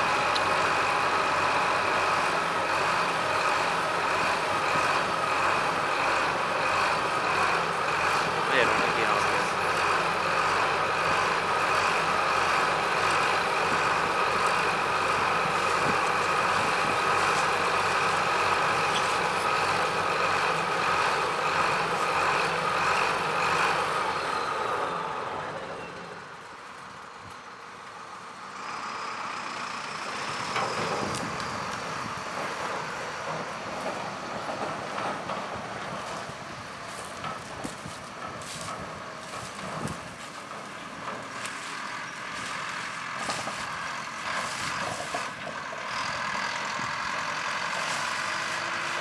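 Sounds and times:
combine harvester droning: 0.0 - 49.0.

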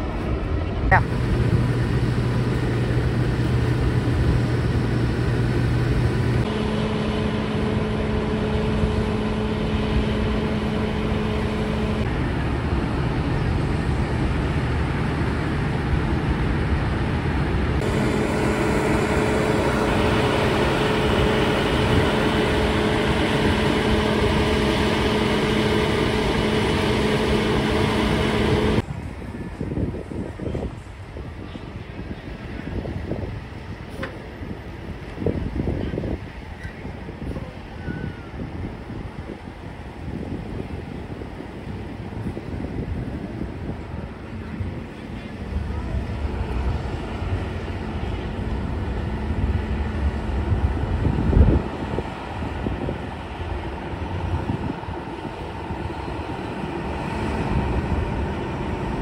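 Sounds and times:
diesel engines idling: 0.9 - 28.8, 42.7 - 59.0.

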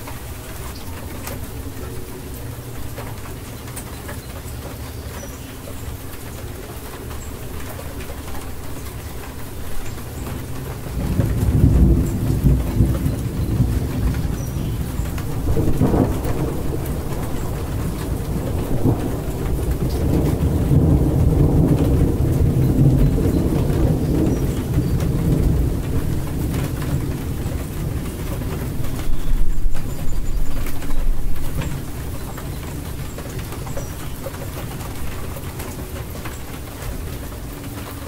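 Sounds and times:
steady rain: 0.0 - 38.0
rolling thunder: 9.8 - 37.4.

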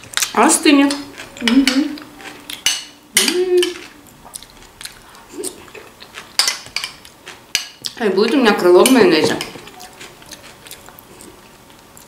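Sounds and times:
eating sounds: 0.0 - 8.4, 9.4 - 12.0
person humming: 3.2 - 4.0.

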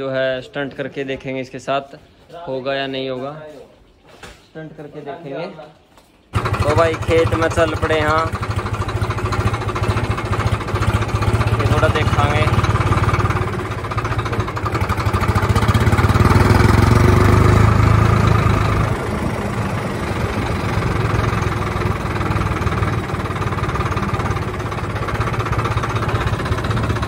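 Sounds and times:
tractor diesel engine driving: 6.3 - 27.0.

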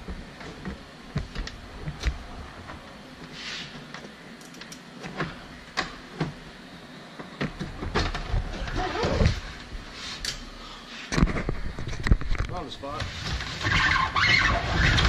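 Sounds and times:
clicks knocks and rustling of wiring: 11.1 - 15.0.

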